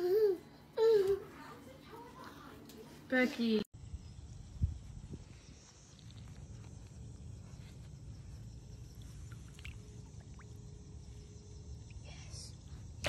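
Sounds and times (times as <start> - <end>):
faint steady hum: 3.8 - 13.0.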